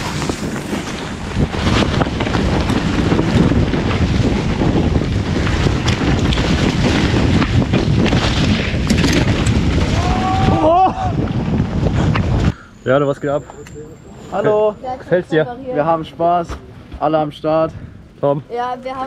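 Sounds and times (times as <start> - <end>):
bike tyres and frame knocking: 0.0 - 12.4
wind rushing over microphone: 0.0 - 12.6.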